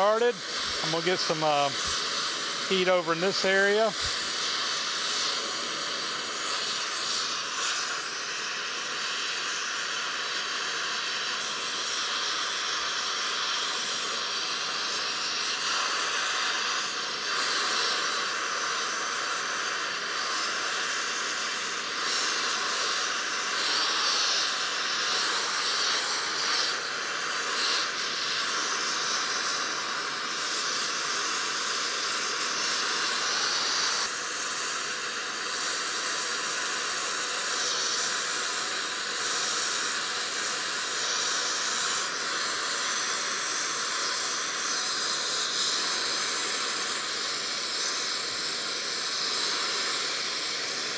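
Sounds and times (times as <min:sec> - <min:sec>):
welding torch flame hissing: 0:00.0 - 0:50.9.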